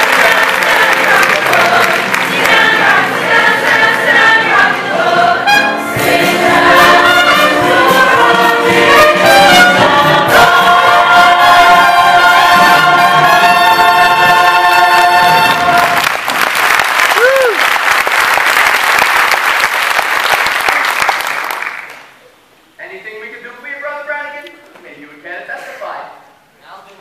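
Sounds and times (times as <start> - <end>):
chorus singing: 0.0 - 16.2
orchestra with trumpets: 5.0 - 16.1.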